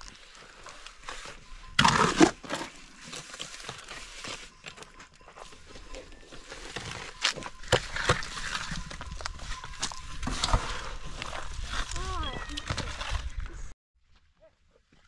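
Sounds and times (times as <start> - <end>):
shovel scraping wet mortar: 0.6 - 4.6, 6.3 - 13.2.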